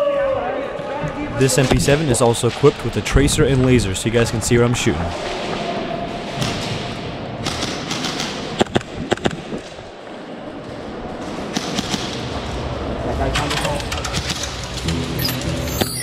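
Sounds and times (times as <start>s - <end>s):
steady background rush: 1.0s - 16.0s
sharp clicks and knocks: 7.4s - 9.8s.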